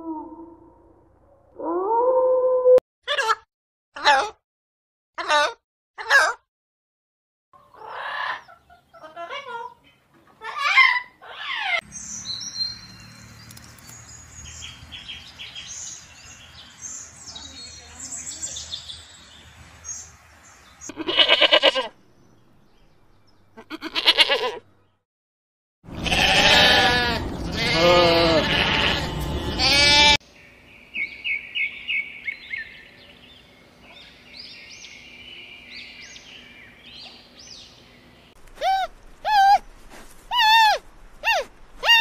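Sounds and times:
small birds chirping: 0:11.8 - 0:21.0, 0:30.2 - 0:42.0
sheep bleating: 0:20.9 - 0:21.9, 0:23.6 - 0:24.6, 0:25.9 - 0:30.2.

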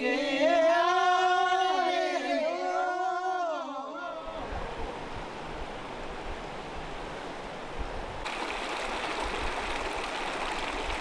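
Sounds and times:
stream rushing over rocks: 0:04.5 - 0:11.0.

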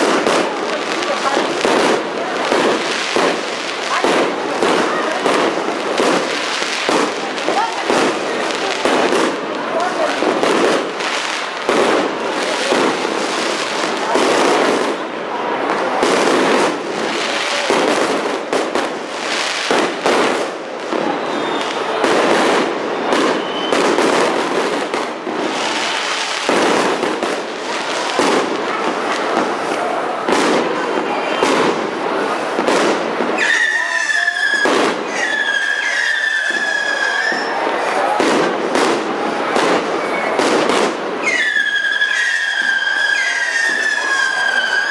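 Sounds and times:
fireworks bangs and crackling: 0:00.0 - 0:44.9
high firework whistle: 0:20.9 - 0:26.0, 0:33.3 - 0:38.9, 0:39.7 - 0:44.9.

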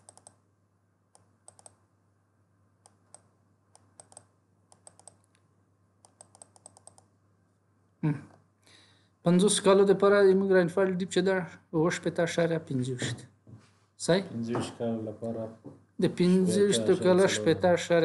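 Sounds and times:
computer mouse clicks: 0:00.0 - 0:00.4, 0:01.1 - 0:01.8, 0:02.8 - 0:07.1.

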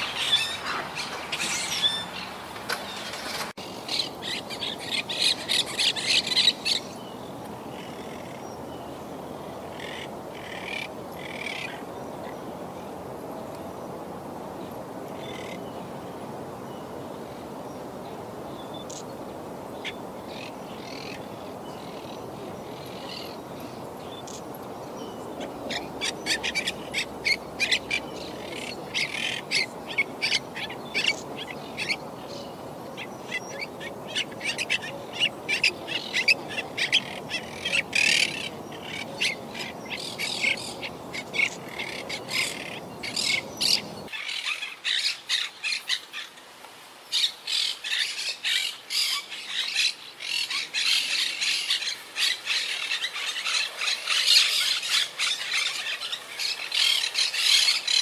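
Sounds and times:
parakeets calling: 0:00.0 - 0:07.0, 0:25.6 - 0:46.3, 0:47.1 - 0:58.0
low steady background noise: 0:00.0 - 0:58.0.

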